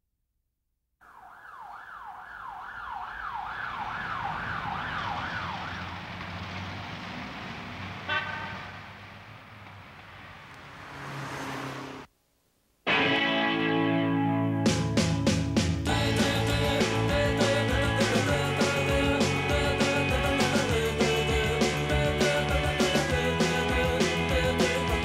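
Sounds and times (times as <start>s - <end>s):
siren wailing: 1.0s - 6.1s
city traffic noise: 2.8s - 12.1s.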